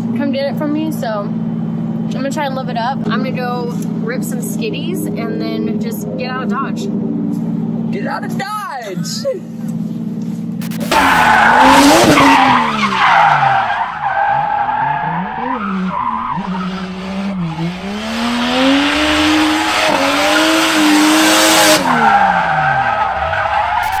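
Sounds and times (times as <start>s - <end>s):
car engine revving: 0.0s - 24.0s
tyres squealing: 10.8s - 24.0s.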